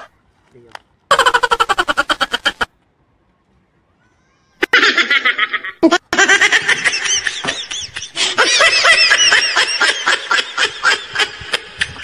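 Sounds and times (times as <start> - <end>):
high-pitched laughter: 1.1 - 2.7, 4.6 - 12.0.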